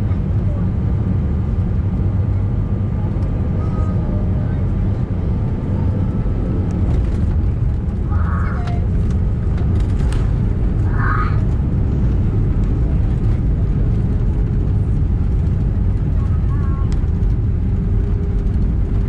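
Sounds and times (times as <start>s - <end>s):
low rumble in aircraft cabin: 0.0s - 19.0s.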